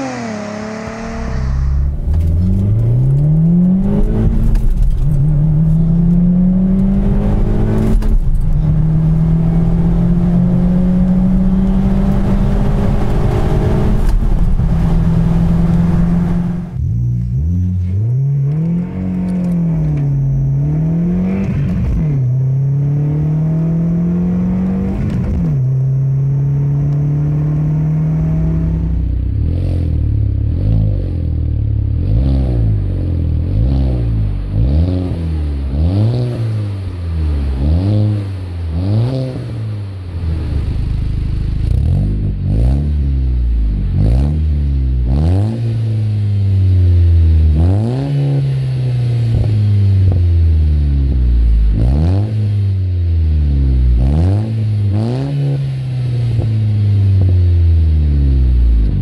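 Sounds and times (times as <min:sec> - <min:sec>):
car engine accelerating: 0:00.0 - 0:59.0
car exhaust revving in blips: 0:00.0 - 0:59.0.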